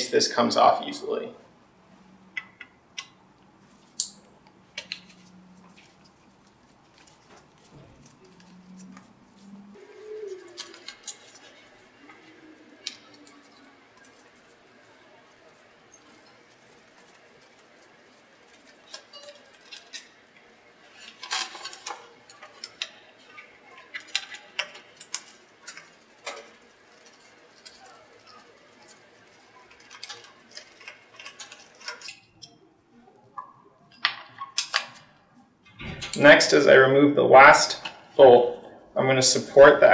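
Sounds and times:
wrench clicks and squeaks: 18.6s - 20.1s.

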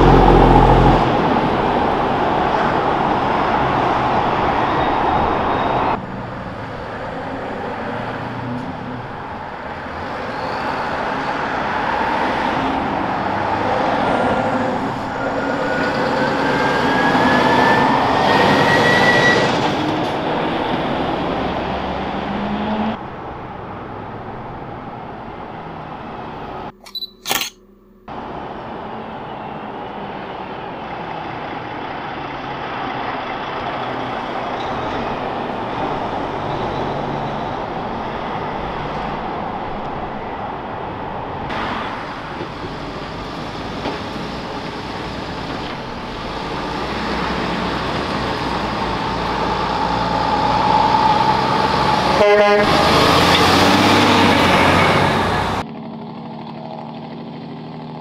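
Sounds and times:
heavy truck driving by: 0.0s - 26.7s, 28.1s - 58.0s.

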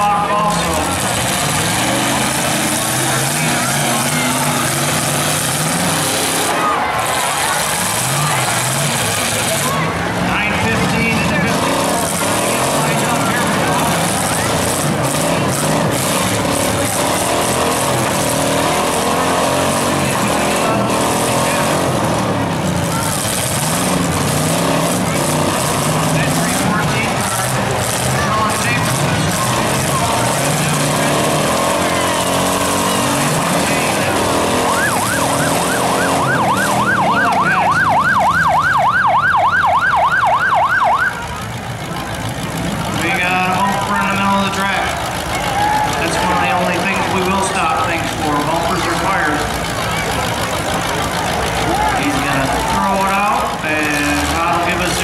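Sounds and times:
several car engines running loudly: 0.0s - 55.0s
electronic yelp siren: 34.6s - 41.2s.

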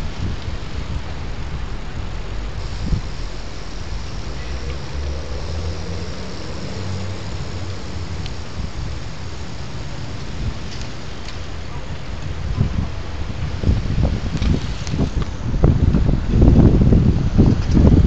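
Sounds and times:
low road rumble: 0.0s - 18.0s
vehicle engine hum: 0.0s - 18.0s
wind buffeting microphone: 0.0s - 18.0s.

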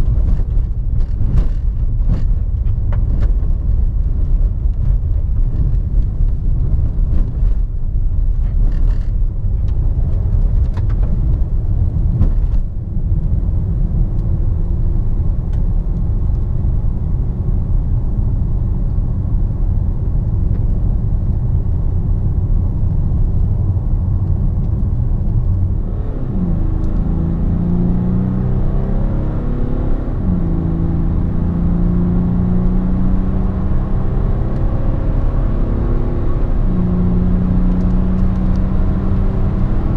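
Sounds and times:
road and tyre rumble: 0.0s - 39.9s
knocks from rough road: 12.1s - 12.6s
car engine accelerating: 20.0s - 39.9s.

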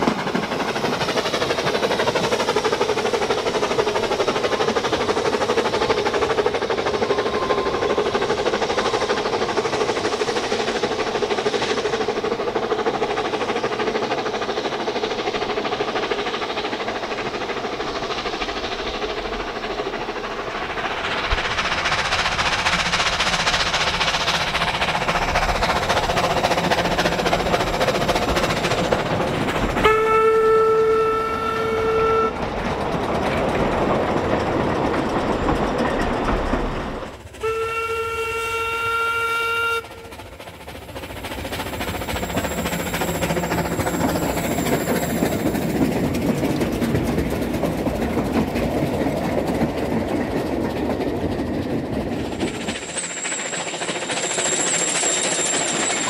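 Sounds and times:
steam train rumbling clatter: 0.0s - 56.0s
steam whistle blasts: 29.8s - 32.4s, 37.4s - 40.1s.

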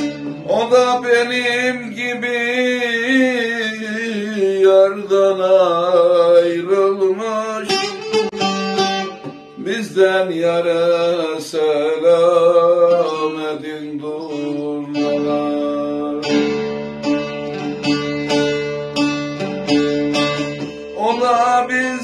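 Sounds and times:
long-necked lute folk melody: 0.0s - 22.0s.

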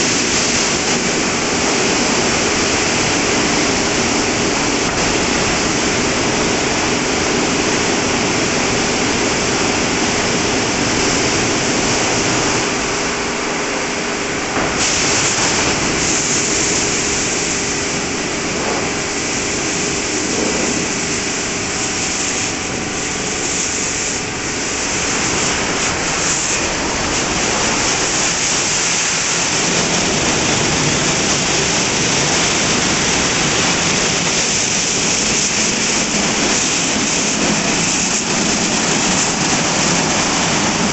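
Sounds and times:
motors and pumps humming: 0.0s - 40.9s
water spray: 0.0s - 40.9s
sharp spray hiss: 14.2s - 40.9s
rotating brushes scrubbing car: 14.8s - 40.9s.

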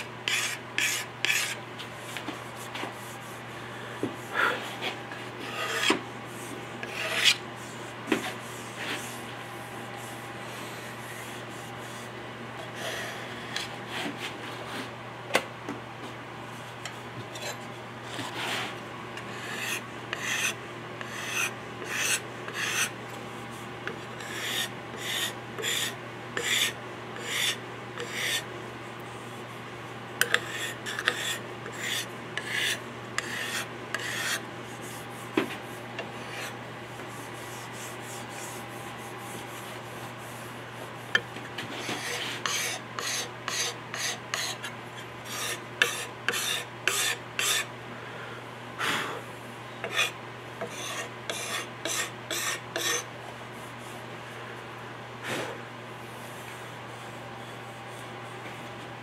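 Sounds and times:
hand scraper strokes on wood: 0.0s - 3.5s, 4.4s - 12.1s, 18.2s - 22.9s, 30.3s - 44.7s, 45.3s - 47.7s, 49.9s - 53.9s.

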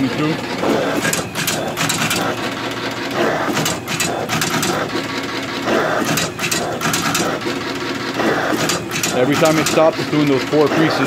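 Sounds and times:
machine sharp clacks: 0.0s - 11.0s
paper cutting machine whirr: 0.0s - 11.0s.

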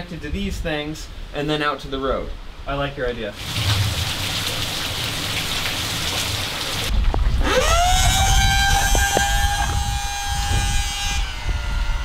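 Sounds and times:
rain falling: 3.4s - 6.9s
wind rumble on microphone: 6.8s - 12.0s
electric pump motor whine: 7.1s - 12.0s.

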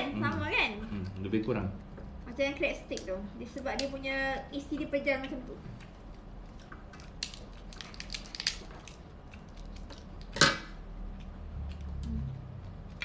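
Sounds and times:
crab shell cracking: 5.8s - 12.1s.

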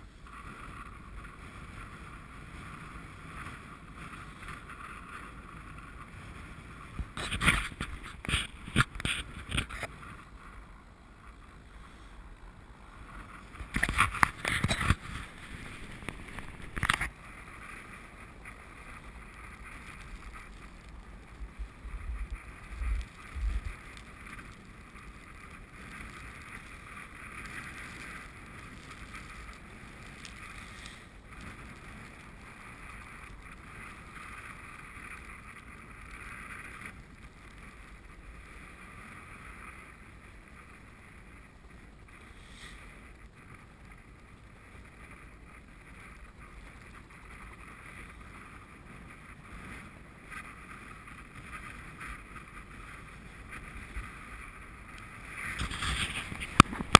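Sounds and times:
faint steady hiss: 0.0s - 56.9s
wind buffeting microphone: 12.5s - 42.2s, 42.8s - 56.9s.

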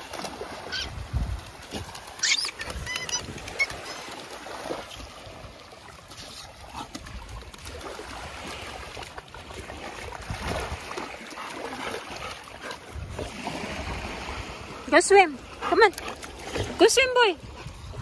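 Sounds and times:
puppy splashing in shallow water: 0.0s - 18.0s
small waves washing ashore: 0.0s - 18.0s.

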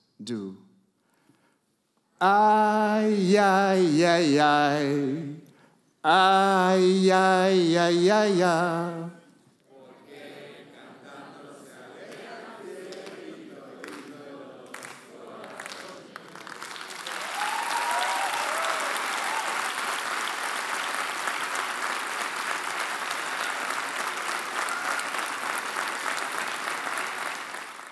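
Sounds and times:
audience applauding: 12.1s - 27.9s
whoops from audience: 17.1s - 19.9s.

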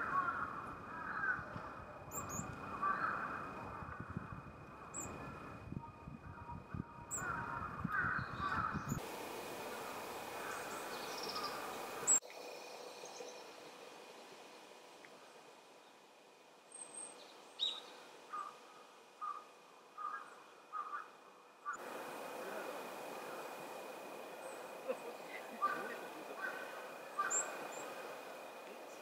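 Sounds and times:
crow cawing: 0.0s - 1.7s, 2.7s - 4.0s, 7.1s - 8.8s, 10.4s - 11.7s, 18.3s - 21.8s, 25.0s - 28.2s
small birds chirping: 0.0s - 4.1s, 4.7s - 5.6s, 6.3s - 9.0s, 9.7s - 13.8s, 15.3s - 29.0s.

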